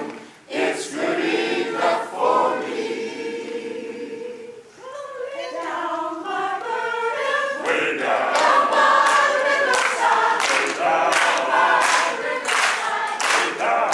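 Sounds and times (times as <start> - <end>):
choir singing: 0.0 - 13.9
rhythmic handclaps: 7.4 - 13.9.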